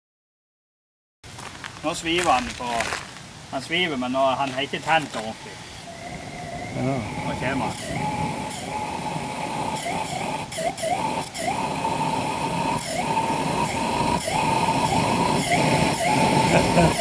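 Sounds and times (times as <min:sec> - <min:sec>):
pulsejet engine buzzing: 0:05.3 - 0:17.0.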